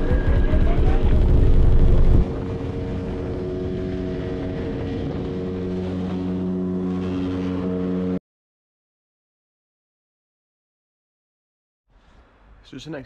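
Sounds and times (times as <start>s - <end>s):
rushing wind: 0.0s - 6.8s
motorboat engine: 0.0s - 8.2s.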